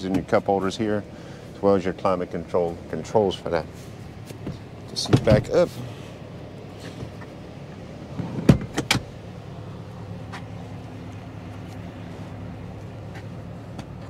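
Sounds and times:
low steady hum: 0.0 - 14.0
car seat latching clunk: 4.3 - 5.6, 8.1 - 9.1.

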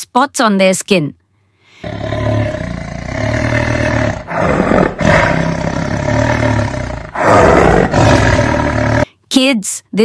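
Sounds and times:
leopard growling and roaring: 1.8 - 9.1.

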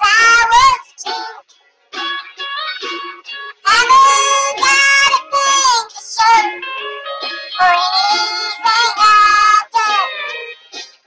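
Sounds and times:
high voice singing: 7.6 - 10.2.

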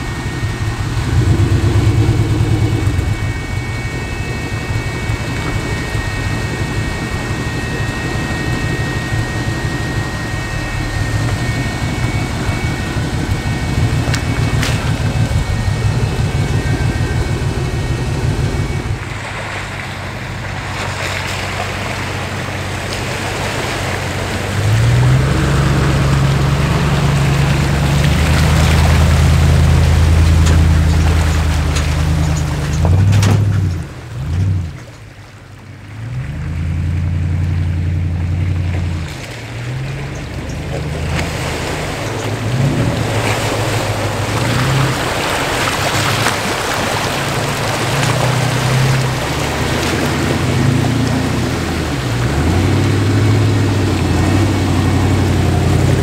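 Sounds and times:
off-road vehicle engine running: 0.0 - 56.0
pickup engine under load: 0.0 - 56.0
water splashing around tyres: 0.0 - 56.0.

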